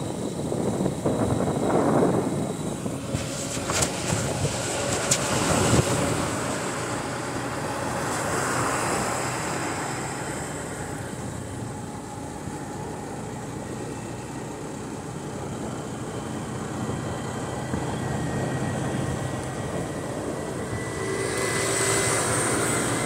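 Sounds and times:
wind rushing over microphone: 0.0s - 11.8s, 16.6s - 23.0s
motorcycle engine cruising: 0.0s - 23.0s.

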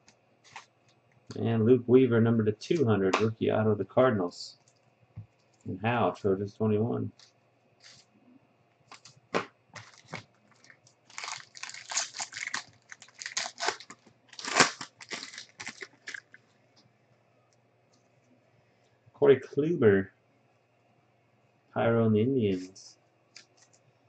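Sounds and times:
foil wrapper tearing and crinkling: 9.8s - 16.4s.

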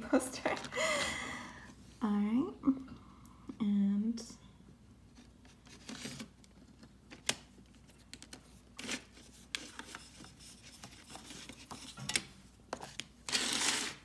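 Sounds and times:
paper rustling: 5.2s - 12.0s.

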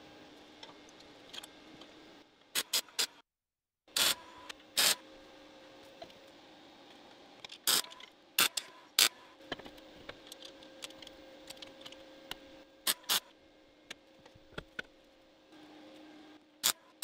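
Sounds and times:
welding arc noise: 2.5s - 3.2s, 3.9s - 5.0s, 7.6s - 9.3s, 12.8s - 13.3s, 15.5s - 17.0s.

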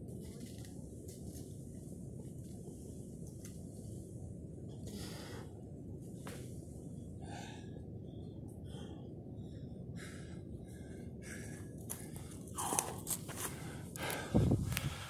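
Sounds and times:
man breathing hard: 7.2s - 15.0s.

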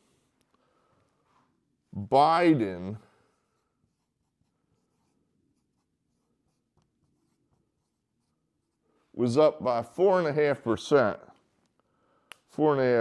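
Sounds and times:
marker writing on a whiteboard: 3.4s - 9.0s.

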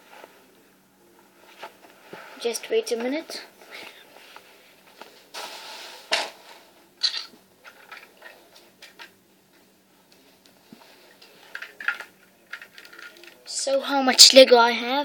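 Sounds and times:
plastic bricks clicking and rattling: 11.5s - 13.4s.

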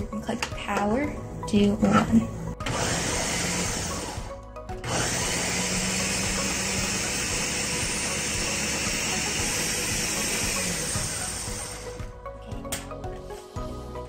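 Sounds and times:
blender running: 2.6s - 12.1s.

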